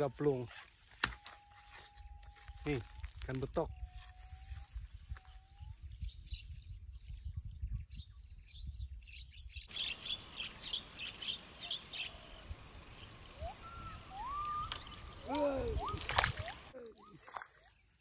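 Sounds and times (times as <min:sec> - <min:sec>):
high-pitched insect buzz: 0:00.4 - 0:03.3.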